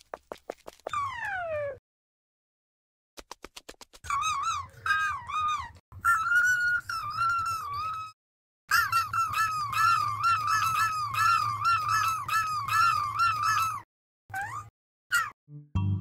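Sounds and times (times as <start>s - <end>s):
low note: 15.5s - 16.0s.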